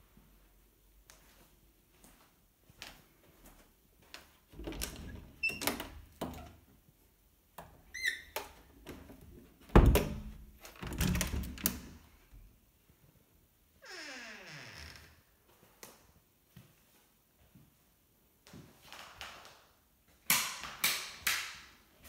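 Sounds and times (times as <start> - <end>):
door squeak: 4.8 - 6.5, 7.9 - 8.4, 13.8 - 15.2
heavy door thud: 9.7 - 11.7.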